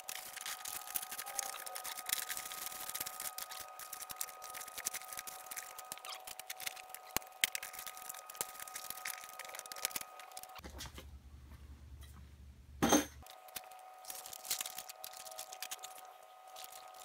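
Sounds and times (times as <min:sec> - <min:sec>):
fabric clicking and crinkling: 0:00.0 - 0:10.6.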